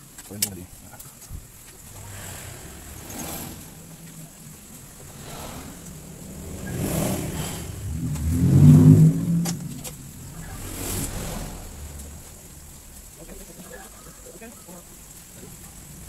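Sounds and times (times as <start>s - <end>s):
vehicle engine passing: 1.4s - 13.6s.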